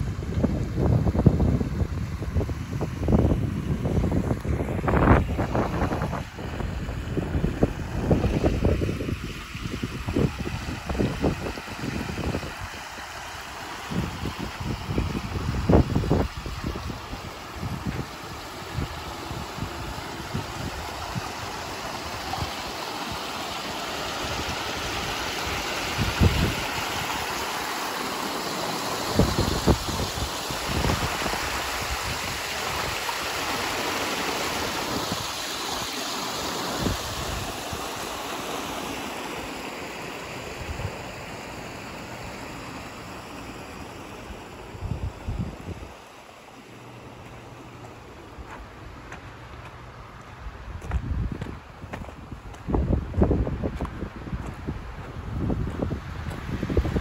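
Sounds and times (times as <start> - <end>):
wind rumbling on microphone: 0.0 - 13.2, 13.8 - 23.2, 24.1 - 27.4, 28.9 - 33.3, 36.7 - 37.8, 44.6 - 46.0, 47.2 - 57.0
waterfall splashing over rocks: 8.0 - 44.2.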